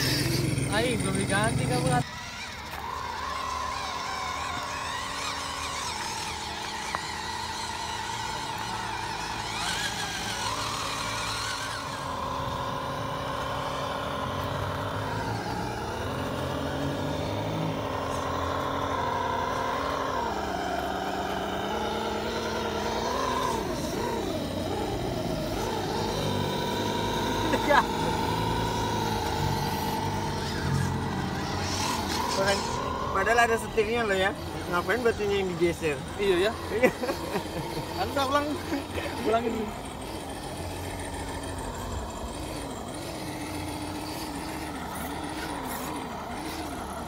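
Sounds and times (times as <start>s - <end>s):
electric motors whining: 0.0s - 47.0s.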